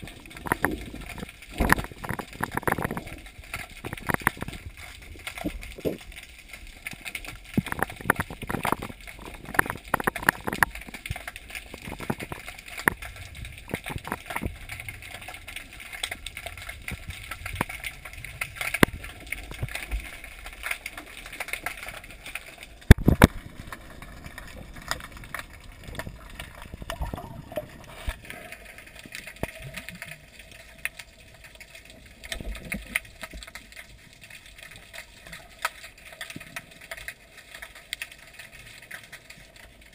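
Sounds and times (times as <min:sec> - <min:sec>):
underwater clicks and knocks: 0:00.0 - 0:30.2.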